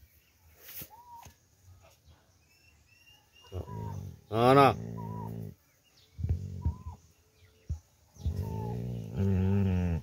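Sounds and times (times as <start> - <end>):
dog growling low: 3.5 - 5.6, 6.2 - 7.0, 8.2 - 10.0.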